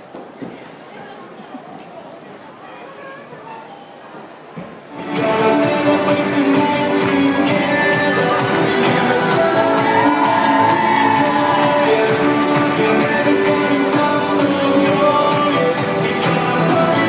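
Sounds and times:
person singing: 4.9s - 17.0s
sustained instrumental chords: 4.9s - 17.0s.

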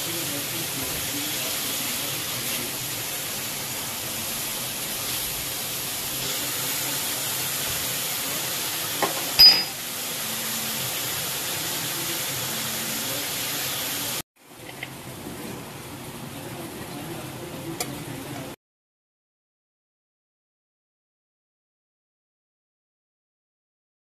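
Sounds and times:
vegetables frying hiss: 0.0s - 18.4s.

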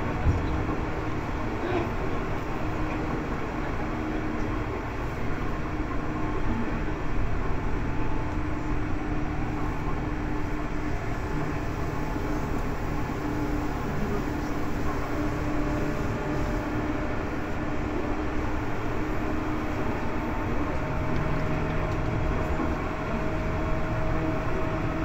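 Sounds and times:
train wheels rumbling on rails: 0.0s - 25.0s.

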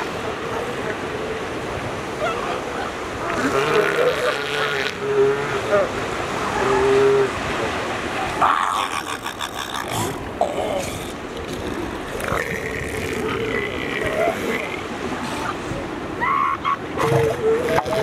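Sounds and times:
steady surf: 0.0s - 18.0s
seals calling: 11.8s - 18.0s.

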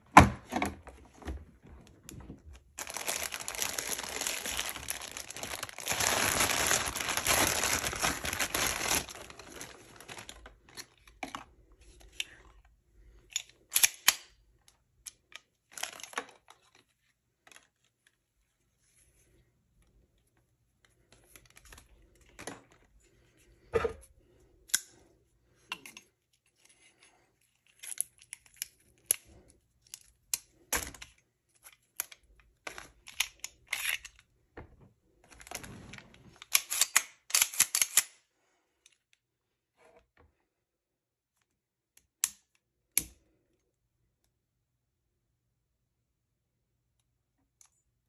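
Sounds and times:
plastic rustling: 1.8s - 11.0s
pistol handling clicks: 36.6s - 38.1s.

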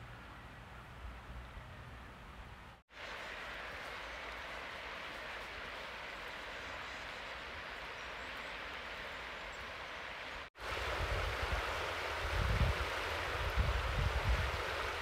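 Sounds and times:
river running over riffles: 2.2s - 15.0s
outdoor hiss: 2.7s - 15.0s
wind gusting on microphone: 10.6s - 15.0s.

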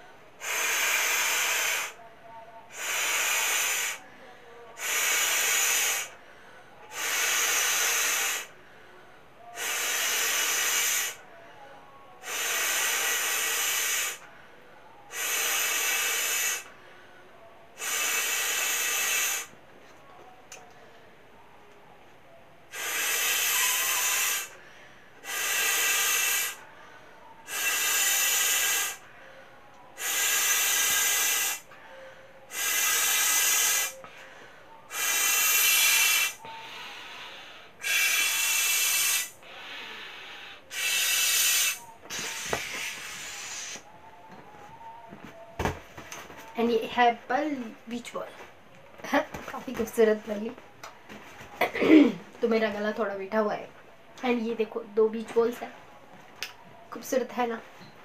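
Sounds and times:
person blowing up beach ball: 22.7s - 24.5s, 25.2s - 26.6s, 27.5s - 29.0s, 30.0s - 31.6s, 32.5s - 34.0s, 34.9s - 36.4s, 37.8s - 39.4s, 40.7s - 43.9s.

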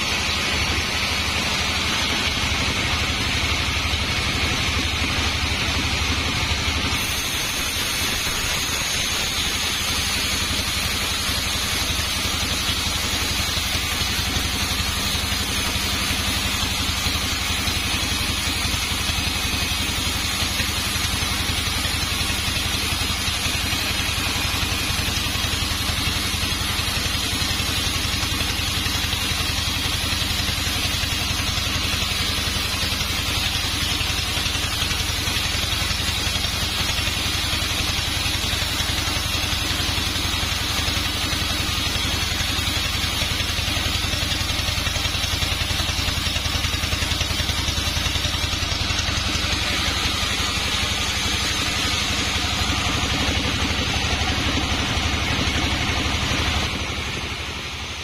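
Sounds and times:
band saw cutting log: 0.0s - 58.0s.

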